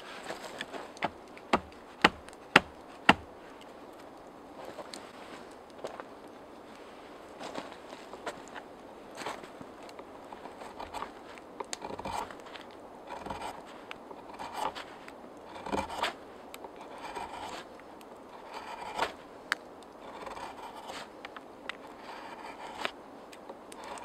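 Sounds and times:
knife scraping wood: 0:10.3 - 0:16.2, 0:16.8 - 0:19.2, 0:20.0 - 0:23.0, 0:23.7 - 0:24.0.

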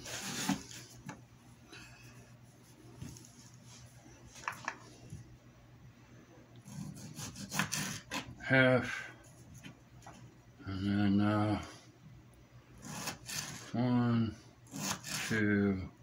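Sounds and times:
knife sawing through tomato: 0:00.0 - 0:00.9, 0:06.6 - 0:08.3, 0:12.8 - 0:13.8, 0:14.7 - 0:15.5.

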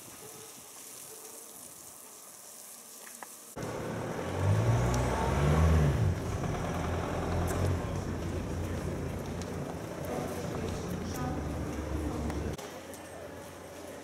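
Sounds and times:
car engine passing by: 0:03.6 - 0:09.5.

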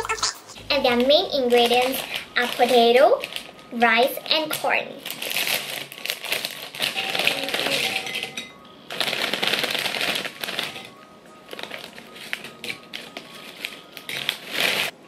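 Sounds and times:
quiet background music: 0:00.0 - 0:15.0
plastic chip bag crinkling: 0:01.4 - 0:15.0
chips rustling into bowl: 0:04.4 - 0:14.9.

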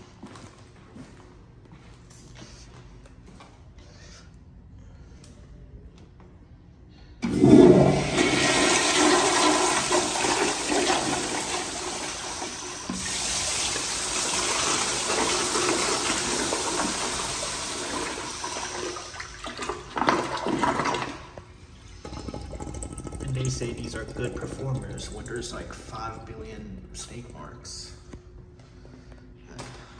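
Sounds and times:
toilet flushing: 0:07.2 - 0:26.3.

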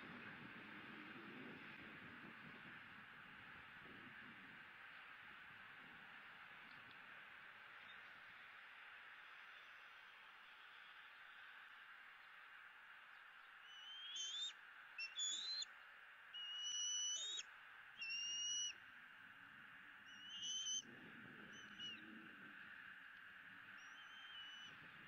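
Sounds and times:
eagle piping calls: 0:13.6 - 0:15.7, 0:16.4 - 0:17.4, 0:18.0 - 0:18.8, 0:20.1 - 0:20.8, 0:21.5 - 0:22.0, 0:23.8 - 0:24.7.

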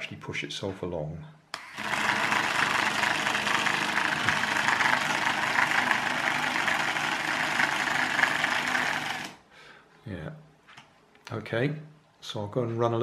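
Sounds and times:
small fan motor whirring: 0:01.6 - 0:09.4.

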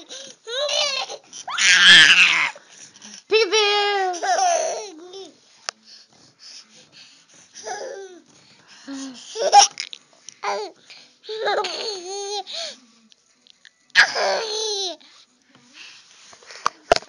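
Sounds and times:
baby laughing and babbling: 0:04.1 - 0:05.4, 0:07.6 - 0:08.2, 0:10.4 - 0:12.5.

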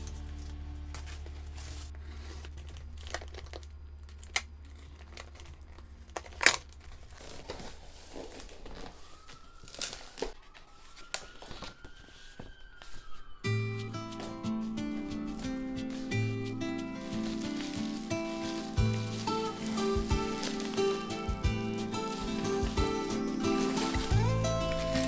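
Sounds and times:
plastic wrap crinkling: 0:00.0 - 0:25.0
cardboard box handled: 0:15.3 - 0:25.0.

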